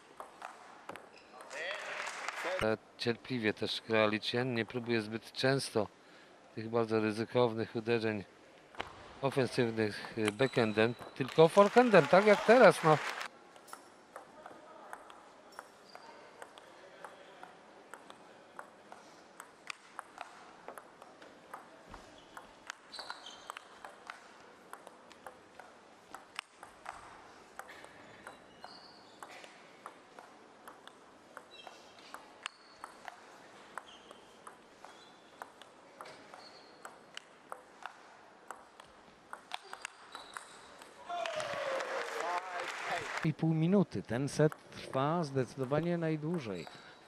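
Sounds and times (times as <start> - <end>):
table tennis ball clicking: 13.7 - 21.7, 23.4 - 41.0
shoes squeaking on floor: 21.9 - 23.7, 28.0 - 29.5, 31.5 - 33.1, 33.8 - 35.4, 36.1 - 36.8, 39.6 - 40.8.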